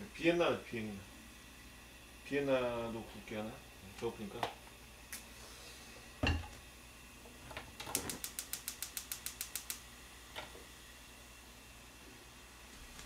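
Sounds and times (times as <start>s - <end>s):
gas stove igniter clicking: 7.8s - 10.5s.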